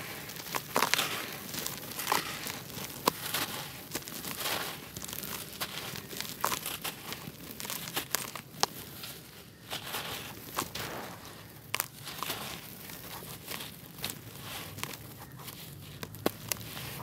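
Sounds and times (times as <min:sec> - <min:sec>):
dirt chunks cracking off: 0:00.0 - 0:17.0
dry dirt crunching and crumbling: 0:00.0 - 0:17.0.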